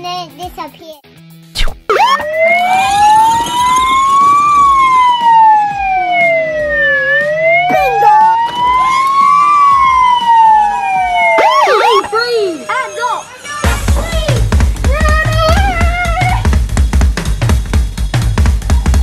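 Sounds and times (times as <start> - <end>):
police siren wailing: 1.9 - 13.6.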